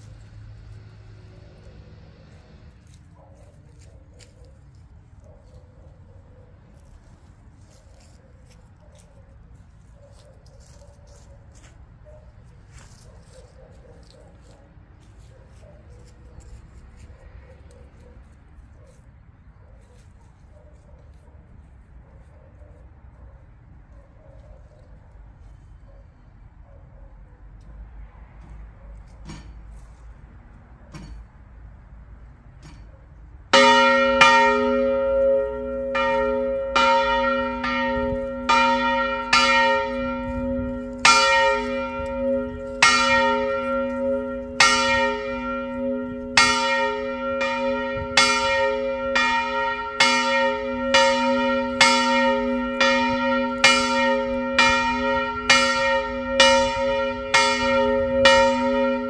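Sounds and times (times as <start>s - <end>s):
large church bell ringing: 33.5s - 59.0s.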